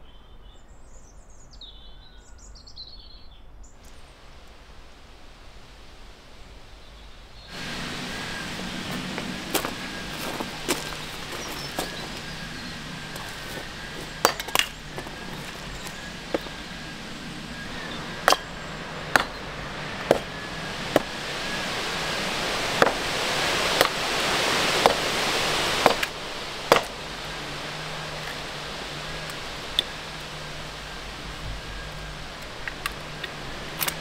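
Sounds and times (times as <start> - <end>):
rustling hiss: 3.6 - 34.0
sharp wooden knocks: 25.8 - 27.0.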